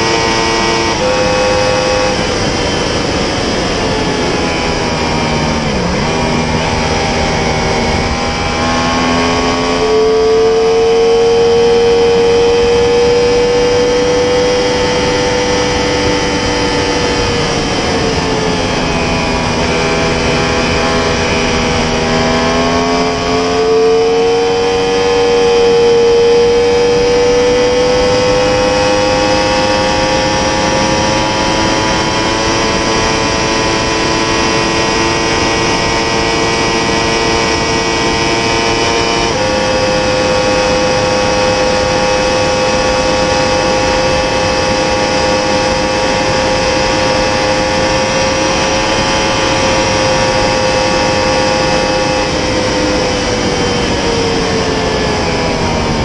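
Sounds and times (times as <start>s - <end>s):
motorcycle engine at high speed: 0.0s - 56.0s
wind rush: 0.0s - 56.0s.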